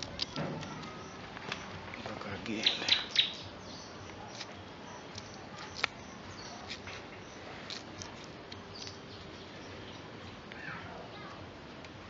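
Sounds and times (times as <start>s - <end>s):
twigs clicking and crackling: 0.0s - 3.4s, 4.0s - 9.3s.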